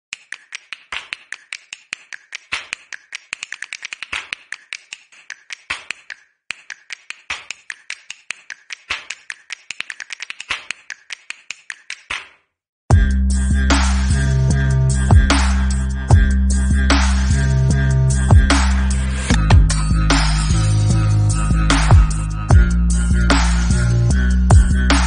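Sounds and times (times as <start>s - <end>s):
percussion rhythm of snaps and clicks: 0.1s - 12.4s, 16.9s - 25.0s
heavier percussion hits: 18.3s - 20.6s, 21.6s - 22.8s.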